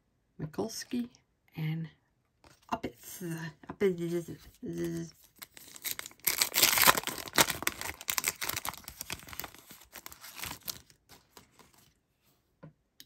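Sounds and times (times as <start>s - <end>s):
foil wrapper ripping and crinkling: 5.2s - 11.8s.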